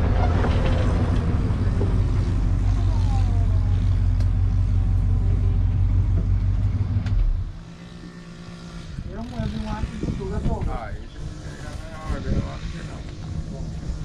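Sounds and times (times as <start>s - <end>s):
vehicle engine rumbling: 0.0s - 14.0s
wind on microphone: 8.9s - 14.0s.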